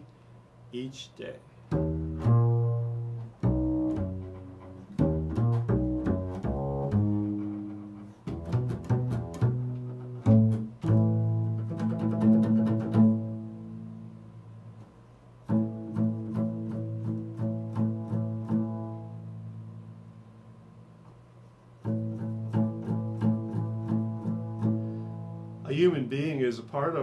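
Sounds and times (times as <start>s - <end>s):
double bass plucked solo: 1.7s - 27.0s.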